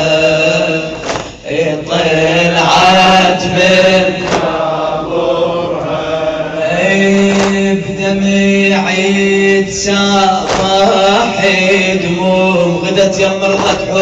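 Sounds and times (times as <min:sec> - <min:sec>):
hands slapping on chests: 0:01.0 - 0:01.4, 0:04.2 - 0:04.6, 0:07.2 - 0:07.7, 0:10.4 - 0:10.9.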